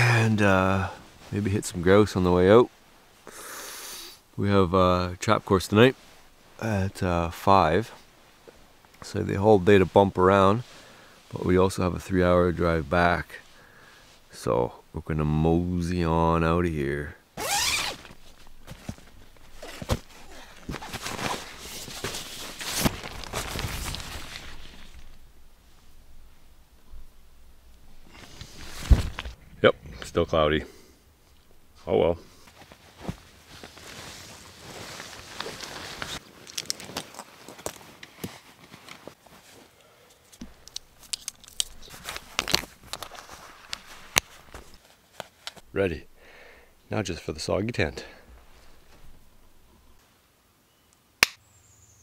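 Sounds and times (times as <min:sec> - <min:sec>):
tent fabric rustling: 0:00.4 - 0:02.0, 0:05.7 - 0:06.6, 0:17.4 - 0:26.4, 0:27.9 - 0:29.4, 0:31.7 - 0:46.5, 0:48.2 - 0:50.0
sharp clicks and crackles: 0:40.3 - 0:43.1.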